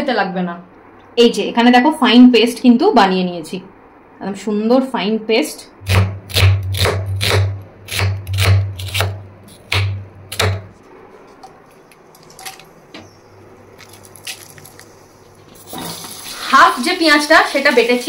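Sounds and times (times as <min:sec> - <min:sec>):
knife chopping on cutting board: 0:05.9 - 0:10.7.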